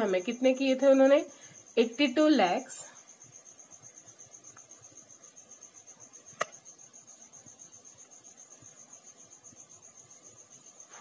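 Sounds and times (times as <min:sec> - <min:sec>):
cricket chirping: 0:00.0 - 0:11.0
sharp click: 0:06.4 - 0:06.6.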